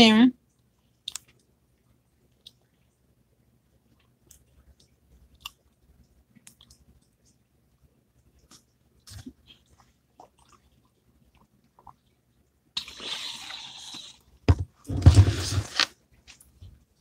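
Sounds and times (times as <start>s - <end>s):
person sipping from plastic bottle: 12.8s - 14.2s.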